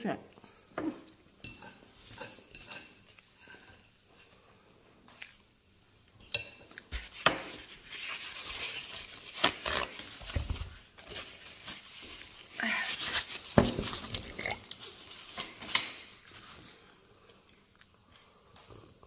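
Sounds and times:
fork clinking on ceramic plate: 0:01.4 - 0:03.8
paper towel rustling and tearing: 0:07.0 - 0:15.7.

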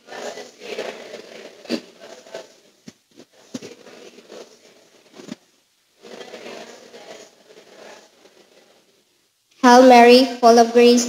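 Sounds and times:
crowd room noise: 0:00.0 - 0:11.0.

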